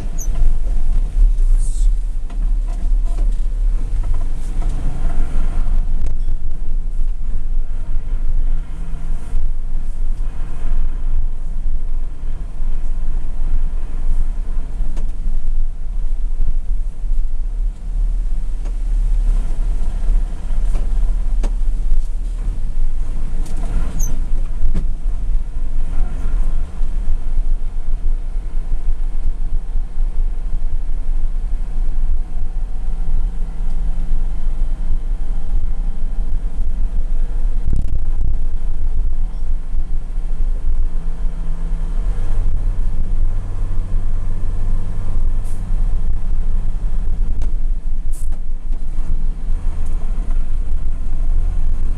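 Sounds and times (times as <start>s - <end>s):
engine rumble inside cab: 0.0s - 51.9s.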